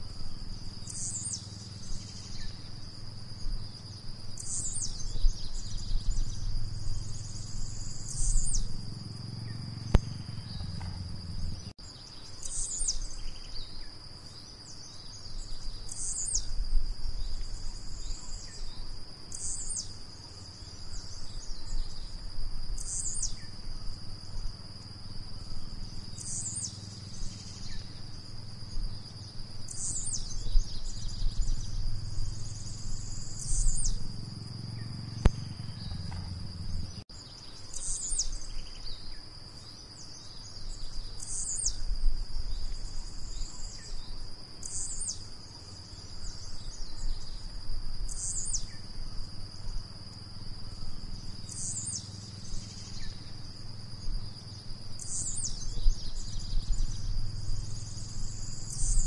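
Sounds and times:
low background rumble: 0:00.0 - 0:12.2, 0:19.8 - 0:37.6, 0:45.2 - 0:59.0
insect drone: 0:00.0 - 0:59.0.

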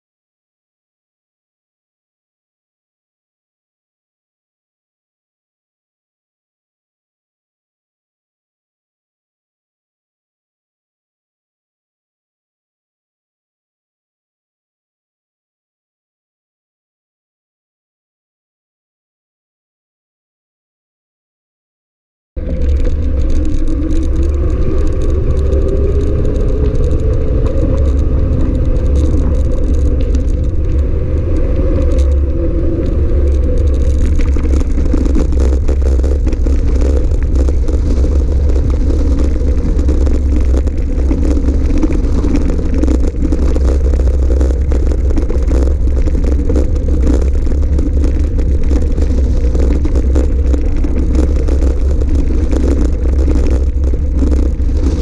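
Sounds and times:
bike rattling: 0:22.4 - 0:55.0
tyres crunching over gravel: 0:22.4 - 0:55.0
wavering whine: 0:22.4 - 0:55.0
wind buffeting microphone: 0:22.4 - 0:55.0.

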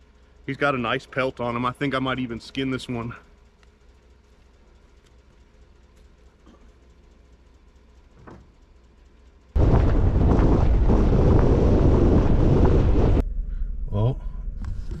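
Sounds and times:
wind buffeting microphone: 0:09.6 - 0:13.2.

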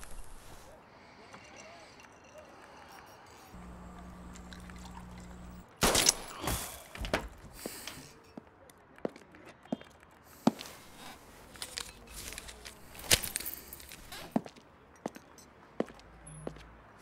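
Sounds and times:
soft rustling: 0:00.0 - 0:00.8, 0:10.4 - 0:14.4.

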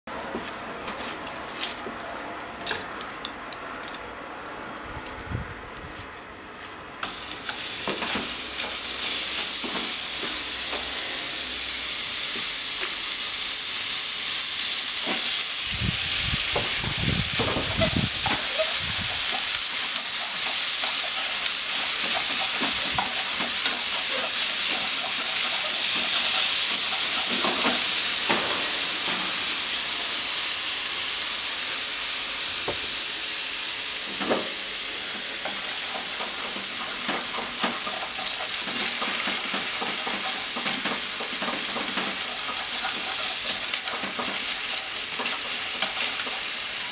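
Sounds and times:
meat sizzling in frying pan: 0:07.0 - 0:46.9.

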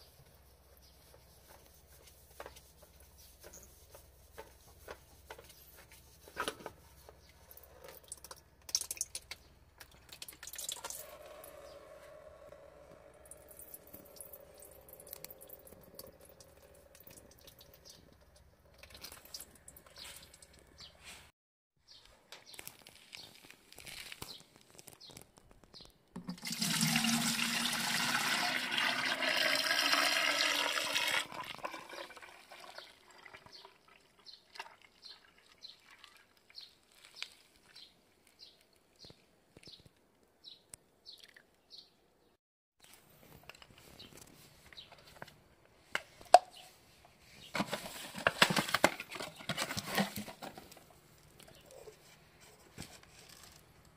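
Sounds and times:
oil pouring into plastic jug: 0:10.1 - 0:11.4, 0:26.2 - 0:36.3.

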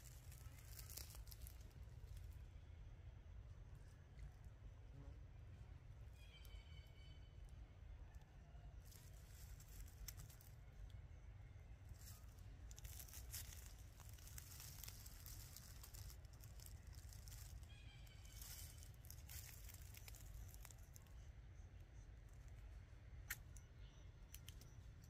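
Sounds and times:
dry leaves rustling: 0:00.0 - 0:02.3, 0:08.9 - 0:10.6, 0:11.8 - 0:21.0
faint high chirp: 0:05.5 - 0:25.0.

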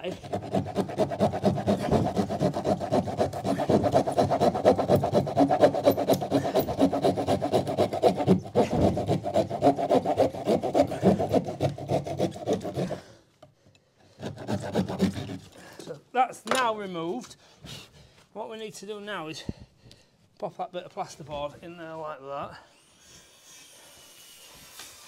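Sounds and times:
hand saw cutting board: 0:00.0 - 0:13.2, 0:14.1 - 0:15.6, 0:23.0 - 0:25.0.

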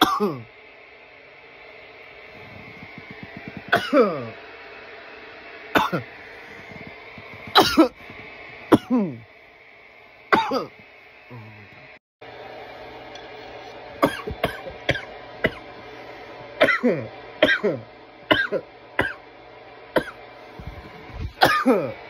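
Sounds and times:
man coughing hard: 0:00.0 - 0:00.5, 0:03.7 - 0:04.4, 0:05.8 - 0:06.1, 0:07.4 - 0:08.0, 0:08.7 - 0:09.2, 0:10.3 - 0:10.8, 0:14.0 - 0:15.6, 0:16.6 - 0:19.2, 0:20.0 - 0:20.2, 0:21.4 - 0:22.0.

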